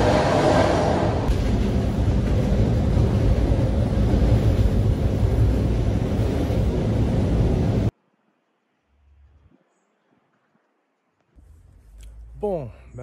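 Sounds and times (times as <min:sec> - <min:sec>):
train rumbling inside carriage: 0:00.0 - 0:07.9.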